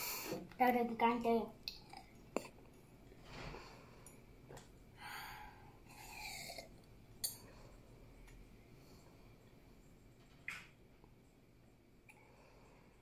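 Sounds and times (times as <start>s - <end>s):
girl breathing: 0.0s - 0.4s, 5.0s - 6.5s.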